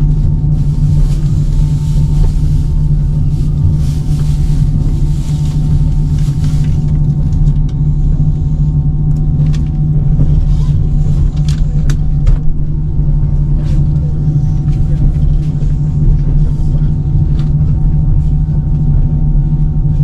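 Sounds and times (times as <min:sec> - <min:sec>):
faint whine: 0:00.0 - 0:20.0
vehicle low rumble: 0:00.0 - 0:20.0.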